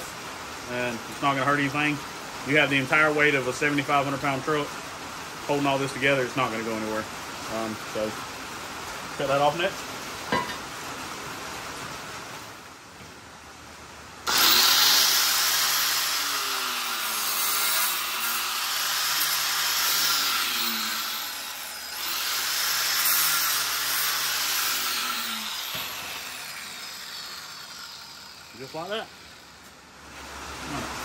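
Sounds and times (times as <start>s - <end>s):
angle grinder cutting metal: 14.3s - 29.8s.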